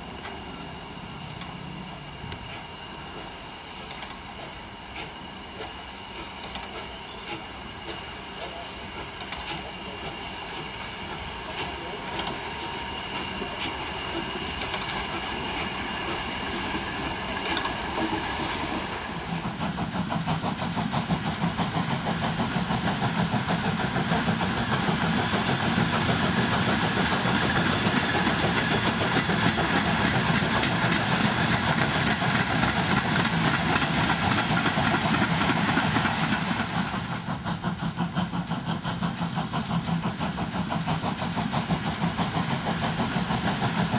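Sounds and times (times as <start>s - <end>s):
steam locomotive exhaust beat: 0.0s - 43.9s.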